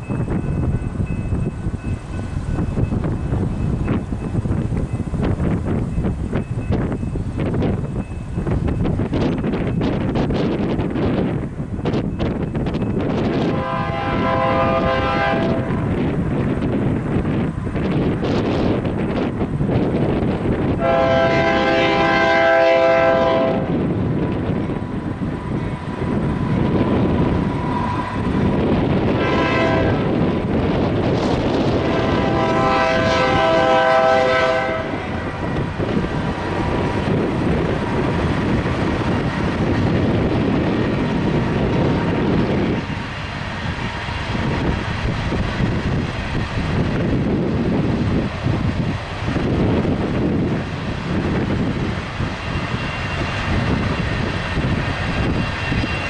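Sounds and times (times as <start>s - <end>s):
train rumbling on rails: 0.0s - 56.0s
locomotive horn blasts: 13.3s - 15.9s, 20.8s - 23.8s, 29.1s - 30.1s, 31.8s - 35.4s.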